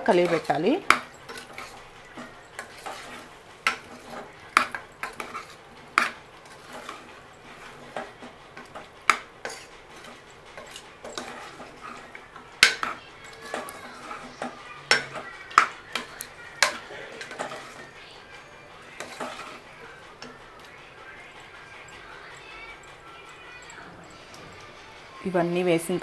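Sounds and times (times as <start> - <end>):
metal spoon scraping and clinking pot: 0.0 - 26.0.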